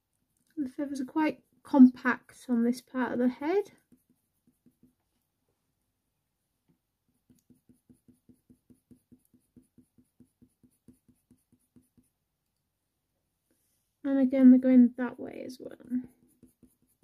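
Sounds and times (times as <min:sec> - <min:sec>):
pencil strokes on paper: 0:00.0 - 0:05.4, 0:07.0 - 0:12.2, 0:15.6 - 0:17.0.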